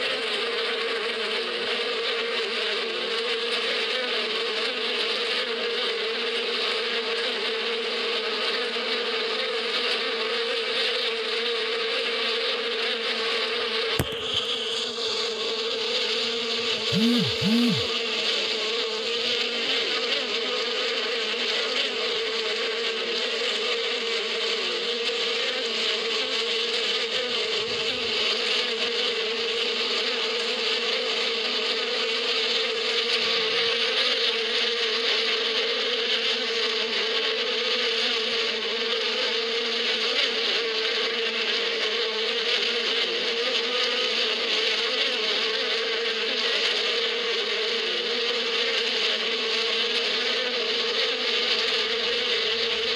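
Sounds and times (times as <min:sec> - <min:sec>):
bees buzzing: 0:14.0 - 0:20.4, 0:26.0 - 0:29.7, 0:32.0 - 0:35.5, 0:47.1 - 0:52.9.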